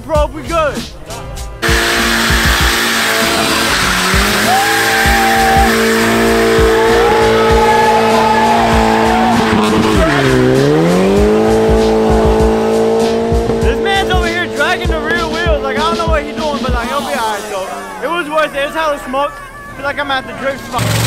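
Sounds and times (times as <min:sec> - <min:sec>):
tyres squealing: 0:01.6 - 0:12.0
car engine revving high: 0:01.6 - 0:18.1.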